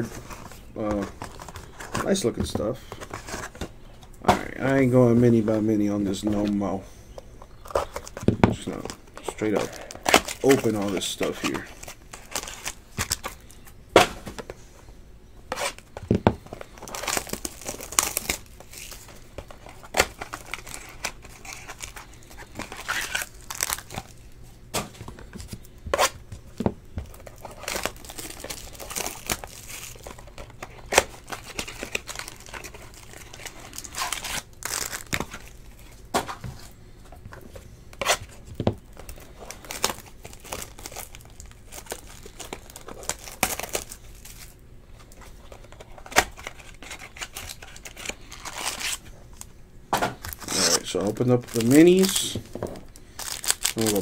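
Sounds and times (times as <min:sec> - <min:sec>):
plastic wrappers tearing and crinkling: 0:07.5 - 0:13.7, 0:15.5 - 0:26.2, 0:27.0 - 0:36.0, 0:38.0 - 0:49.5, 0:50.2 - 0:54.0.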